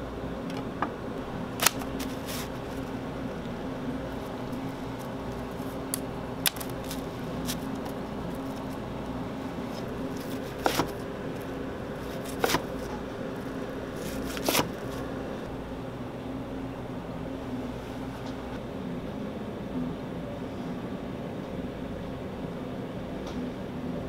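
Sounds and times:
steady low hum: 0.0 - 24.0
knife cutting plastic-wrapped roll: 1.6 - 2.8, 4.1 - 8.8, 9.7 - 11.0, 12.0 - 15.1.

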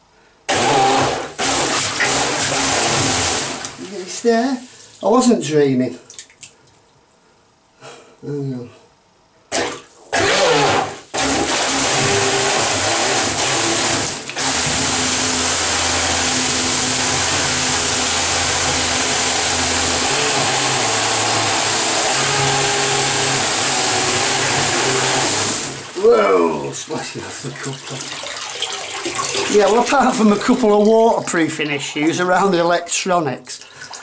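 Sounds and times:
electric motor drone: 10.2 - 25.8.

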